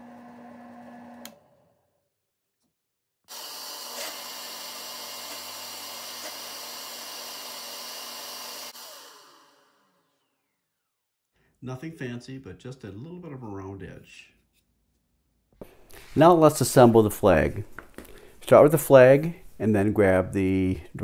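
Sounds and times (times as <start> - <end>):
drill press motor hum: 0.0 - 1.8, 3.3 - 11.0
disc sander sanding plastic: 3.3 - 9.2
sander coasting down: 3.3 - 10.8.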